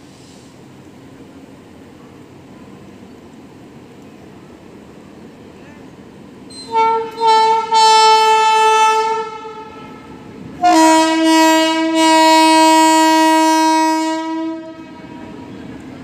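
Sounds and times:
locomotive horn blasts: 0:06.5 - 0:15.5.

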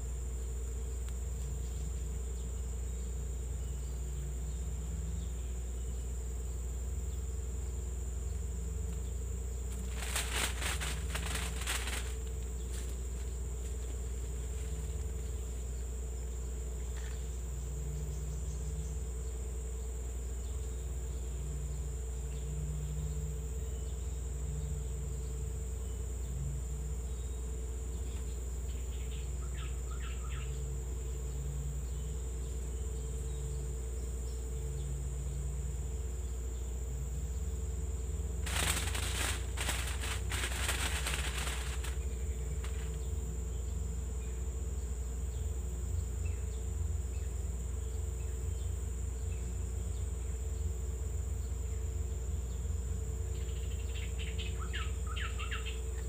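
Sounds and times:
insects droning: 0:00.0 - 0:56.0
rapid clicking: 0:09.8 - 0:13.0, 0:38.5 - 0:42.0.

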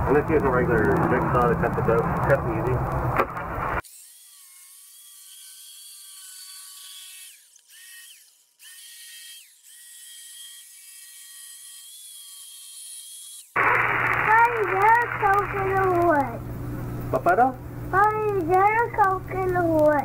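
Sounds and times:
jigsaw cutting plastic pipe: 0:03.3 - 0:16.1.

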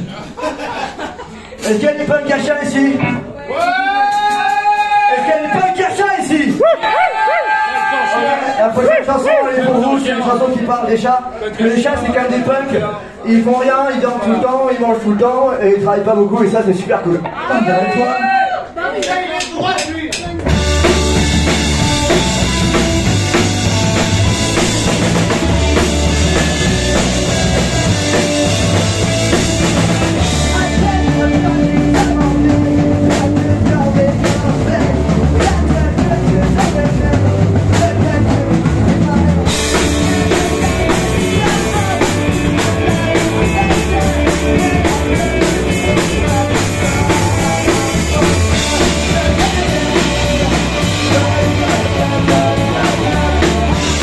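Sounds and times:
drum kit: 0:00.0 - 0:08.0, 0:19.0 - 0:54.0
bass guitar: 0:20.1 - 0:54.0
electric guitar: 0:20.4 - 0:54.0.

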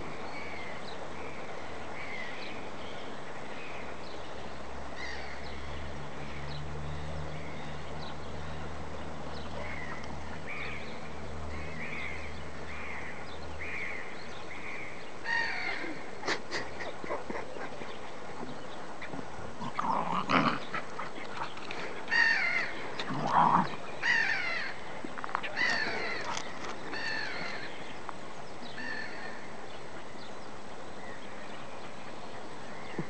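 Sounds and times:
harsh animal calls: 0:22.0 - 0:24.8.

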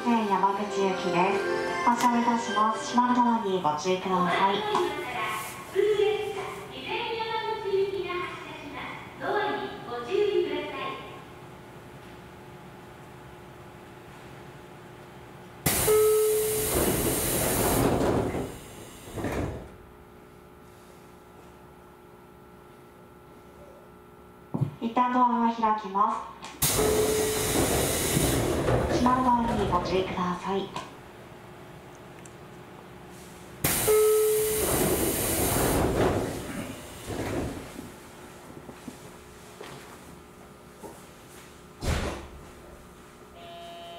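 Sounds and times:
steady warning tone: 0:15.7 - 0:17.5, 0:26.6 - 0:28.3, 0:33.7 - 0:35.2, 0:43.4 - 0:43.9
train door air hiss: 0:15.7 - 0:19.7, 0:26.6 - 0:28.7, 0:33.6 - 0:37.7.

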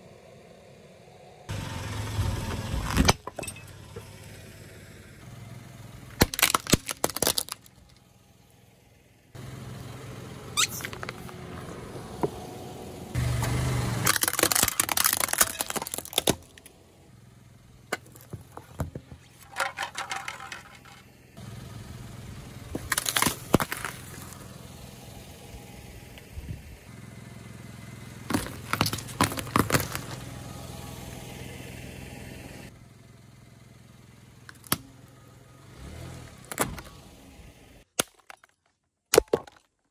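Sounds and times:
car engine running low: 0:00.0 - 0:37.9
tyre crushing plastic objects: 0:06.2 - 0:08.0, 0:10.6 - 0:11.4, 0:14.0 - 0:16.7, 0:17.9 - 0:21.0, 0:22.7 - 0:24.4, 0:28.3 - 0:30.2, 0:37.9 - 0:39.9.

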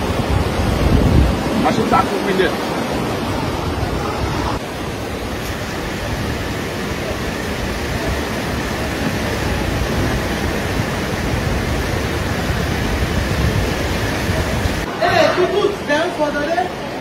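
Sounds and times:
floodwater rushing: 0:00.0 - 0:17.0.

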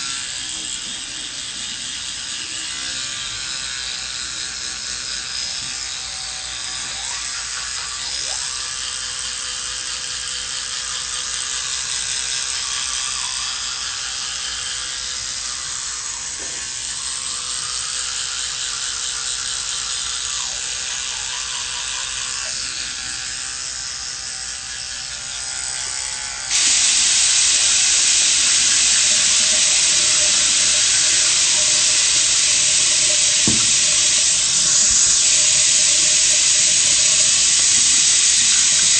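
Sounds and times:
electric toothbrush buzzing: 0:00.0 - 0:38.9
tap water running into sink: 0:26.5 - 0:34.2.

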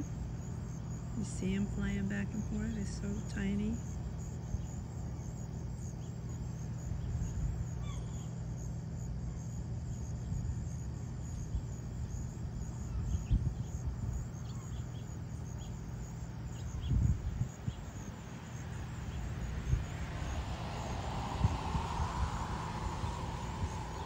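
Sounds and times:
light rain hiss: 0:00.0 - 0:24.0
faint bird chirps: 0:06.9 - 0:08.6, 0:12.6 - 0:15.8.

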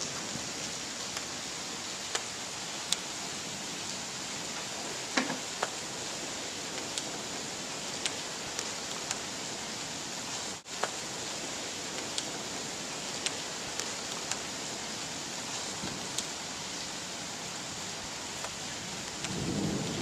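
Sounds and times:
heavy rain hiss: 0:00.0 - 0:20.0
raindrops ticking close by: 0:00.0 - 0:20.0.

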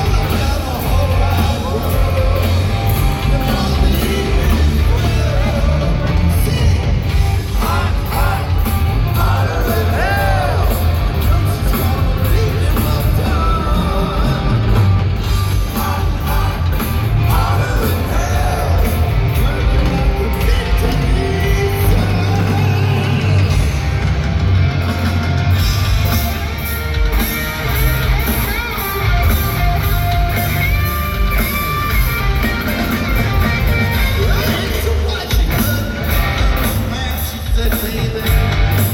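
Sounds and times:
man singing lead vocal: 0:00.0 - 0:23.8, 0:33.7 - 0:38.9
bass: 0:00.0 - 0:38.9
distorted electric guitars: 0:00.0 - 0:38.9
drums: 0:00.0 - 0:38.9.

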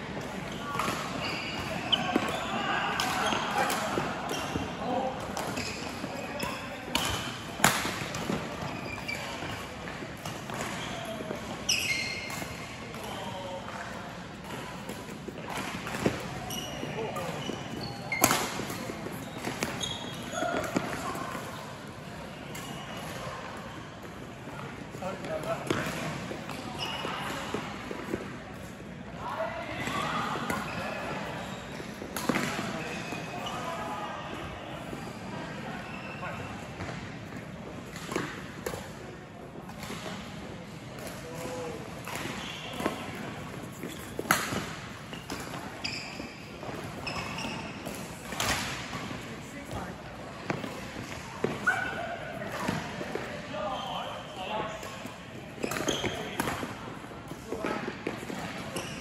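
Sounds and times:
shoes squeaking on court floor: 0:00.2 - 0:28.8, 0:29.4 - 0:59.0
rackets hitting shuttlecock: 0:05.2 - 0:08.6, 0:18.1 - 0:21.4, 0:41.0 - 0:45.8, 0:54.7 - 0:58.6.

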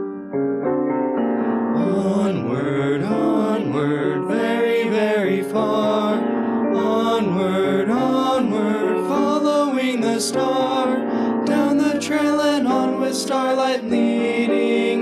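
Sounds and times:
piano accompaniment: 0:00.0 - 0:15.0
vocal group singing: 0:01.8 - 0:15.0.

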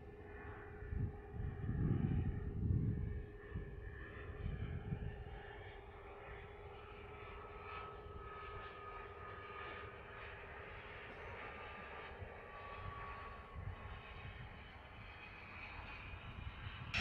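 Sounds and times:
low hum and rumble: 0:00.0 - 0:05.5, 0:15.9 - 0:17.0
jet engine whine falling in pitch: 0:00.0 - 0:17.0.

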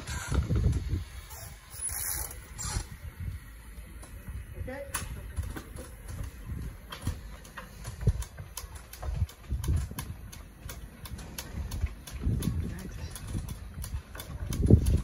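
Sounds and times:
rigging clicks: 0:04.9 - 0:15.0.

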